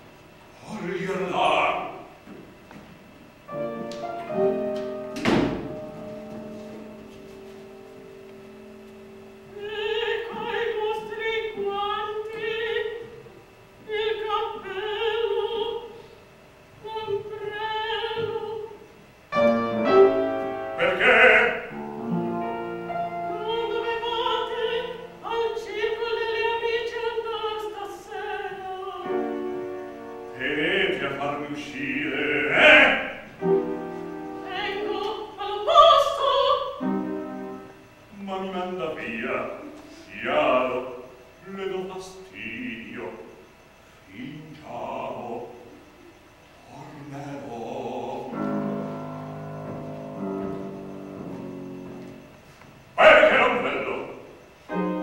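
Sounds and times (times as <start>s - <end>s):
piano accompaniment: 3.4s - 11.8s, 19.3s - 38.0s, 47.8s - 52.4s, 54.7s - 55.0s
soprano singing opera: 9.5s - 16.0s, 16.8s - 18.8s, 20.7s - 21.8s, 23.1s - 29.5s, 30.3s - 33.2s, 34.4s - 36.9s, 38.1s - 43.3s, 44.1s - 45.8s, 46.7s - 48.8s.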